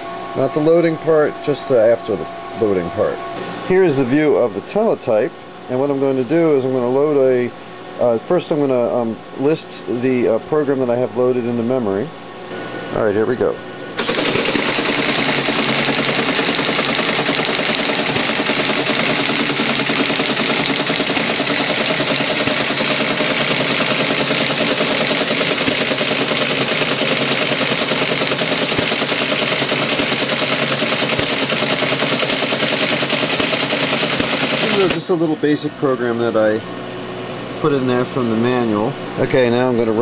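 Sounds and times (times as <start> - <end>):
steady hum: 0.0 - 40.0
teletype printer clattering: 14.0 - 35.0.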